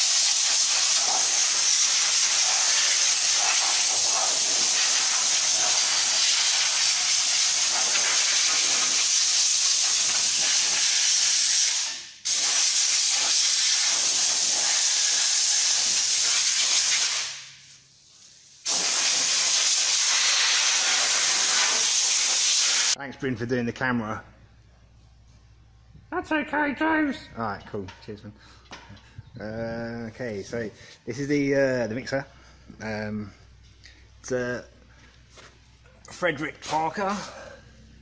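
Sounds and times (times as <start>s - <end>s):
air spray gun hissing: 0.0s - 23.0s.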